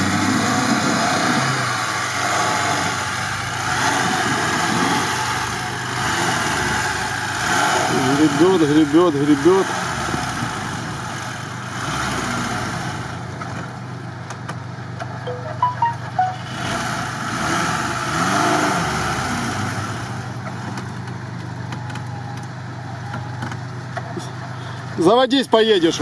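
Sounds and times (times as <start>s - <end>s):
car engine straining under load: 0.0s - 15.2s.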